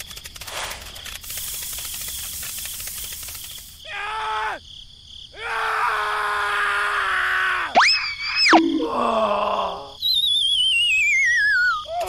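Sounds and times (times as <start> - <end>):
cartoon whistle: 7.7 - 9.1, 10.0 - 12.0
sliding wavering whistle: 7.8 - 9.0, 10.0 - 12.0.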